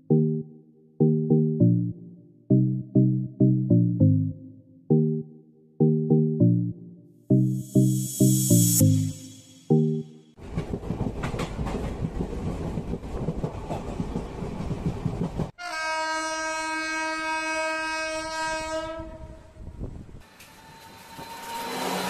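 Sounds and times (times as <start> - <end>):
train rumbling on rails: 10.4 - 15.6, 19.5 - 22.0
train horn blast: 15.6 - 19.6.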